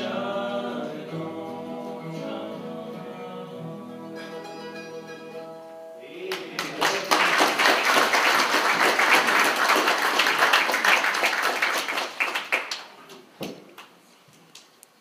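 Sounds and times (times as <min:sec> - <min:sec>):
crowd applauding: 0:06.3 - 0:13.0.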